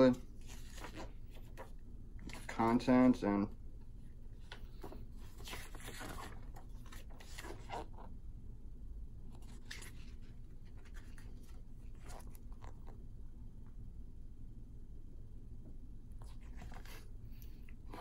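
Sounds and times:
faint low hum: 0.0 - 18.0
paper pages rustling: 0.3 - 2.9, 4.4 - 8.1, 9.3 - 13.0.

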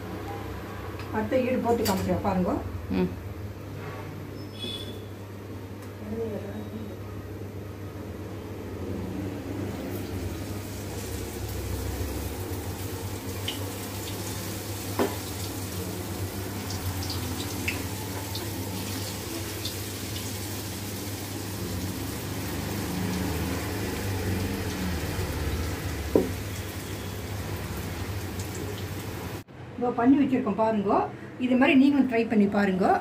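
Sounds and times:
food deep-frying in hot oil: 9.3 - 29.5.

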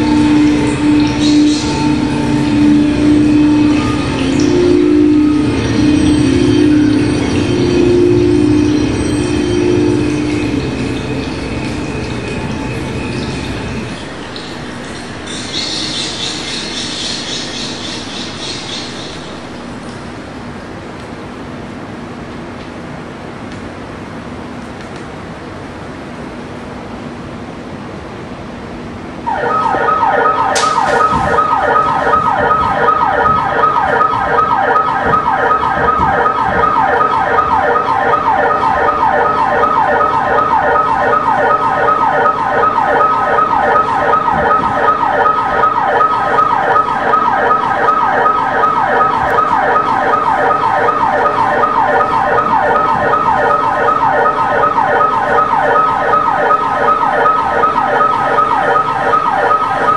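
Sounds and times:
low hum: 0.0 - 15.3
warbling siren: 0.0 - 20.6, 29.2 - 59.9.

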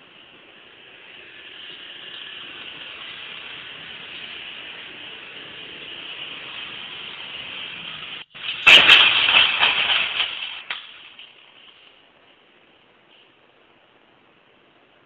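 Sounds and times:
steady hiss: 0.0 - 15.0
clattering and scraping: 2.0 - 12.0
motorbike crash impact: 2.1 - 12.0.

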